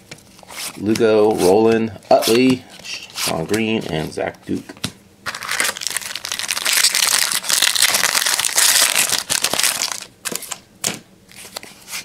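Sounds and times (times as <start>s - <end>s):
wrapper crinkling: 5.3s - 10.6s.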